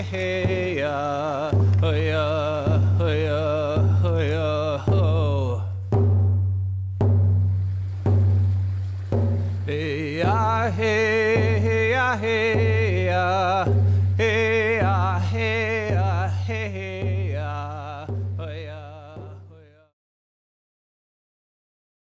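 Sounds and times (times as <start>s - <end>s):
person chanting: 0.0s - 6.0s, 9.5s - 19.9s
deep drum beats: 0.0s - 19.9s.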